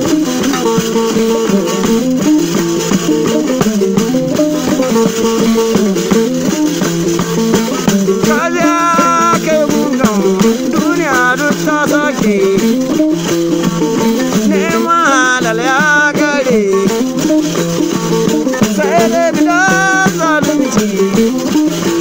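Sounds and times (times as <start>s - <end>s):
plucked lutes: 0.0s - 22.0s
person singing: 7.6s - 12.9s, 14.3s - 17.1s, 18.6s - 21.5s.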